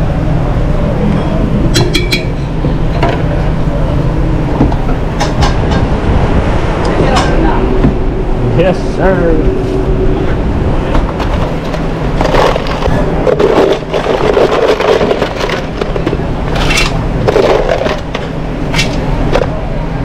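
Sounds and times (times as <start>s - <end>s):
steady low hum: 0.0s - 20.0s
mussel shells clattering and scraping: 11.0s - 19.5s.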